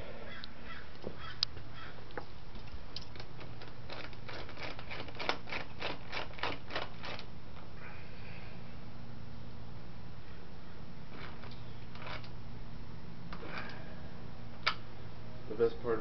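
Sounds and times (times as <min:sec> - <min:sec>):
ratchet clicking: 0:11.2 - 0:12.4.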